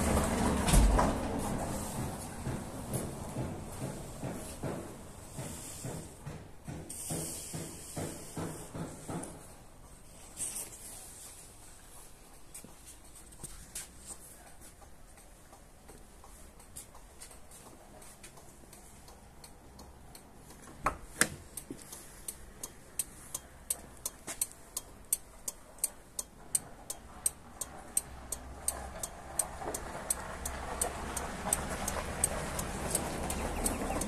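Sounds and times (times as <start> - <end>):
turn signal relay ticking: 12.2 - 34.0.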